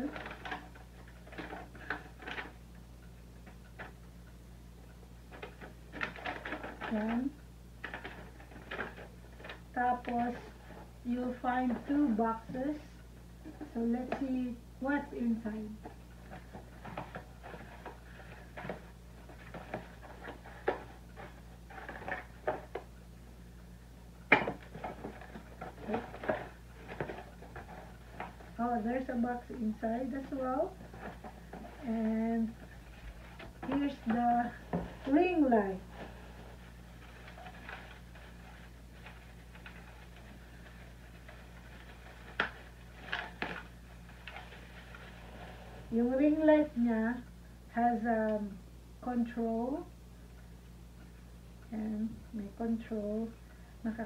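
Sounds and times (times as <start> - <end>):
faint low hum: 0.0 - 54.0
paper rustling and crinkling: 16.2 - 22.8, 24.4 - 28.6, 29.6 - 45.6.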